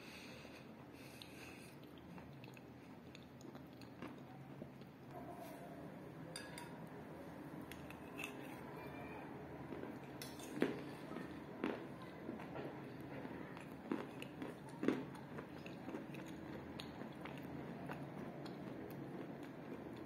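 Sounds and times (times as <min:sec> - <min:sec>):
mouth chewing wet clay: 0:01.0 - 0:05.0, 0:09.7 - 0:20.0.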